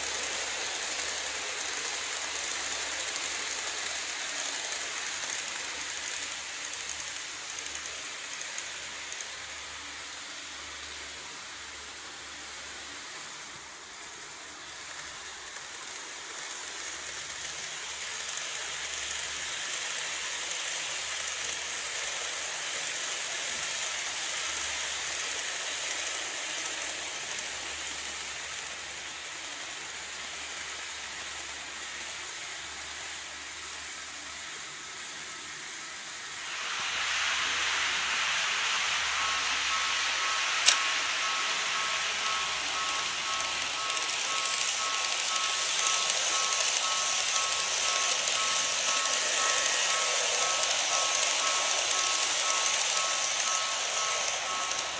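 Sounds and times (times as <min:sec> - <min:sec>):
model trains whirring: 0:00.0 - 0:54.9
sharp click: 0:40.2 - 0:52.0.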